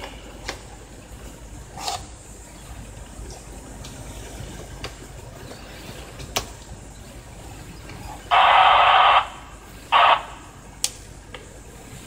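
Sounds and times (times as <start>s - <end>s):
harsh electronic buzzes: 8.2s - 10.7s.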